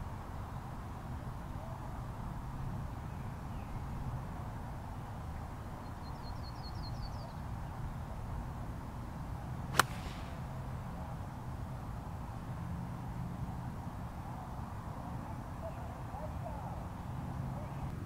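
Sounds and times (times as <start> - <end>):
low background noise: 0.0 - 18.0
golf club striking ball: 9.7 - 10.6.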